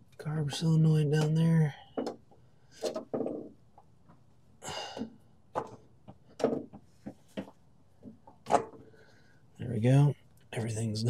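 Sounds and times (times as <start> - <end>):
breathy sigh: 4.6 - 5.2.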